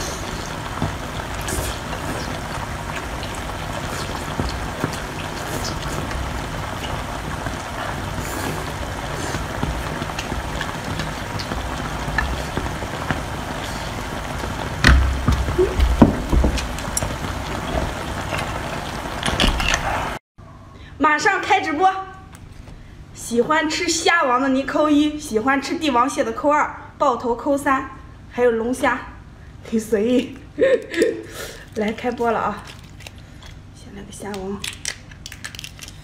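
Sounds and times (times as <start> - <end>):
wet chewing and slurping: 0.0 - 14.0
low thumps: 14.8 - 18.0.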